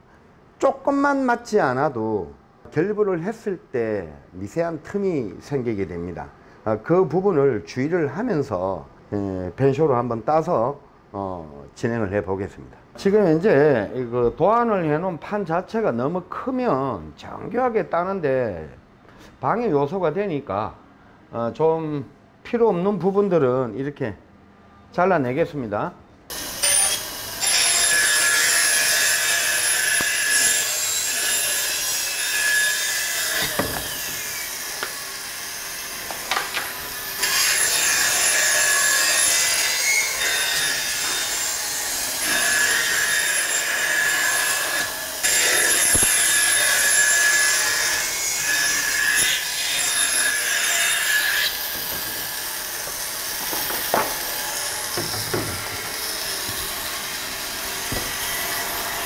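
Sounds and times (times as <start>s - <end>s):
bandsaw blade whine: 26.3s - 59.0s
bandsaw cutting plywood: 26.3s - 59.0s.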